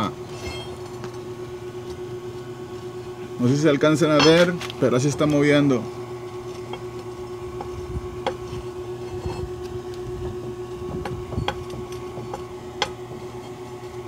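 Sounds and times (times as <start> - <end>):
steady low hum: 0.0 - 14.0
ball joint knocking: 11.0 - 13.3.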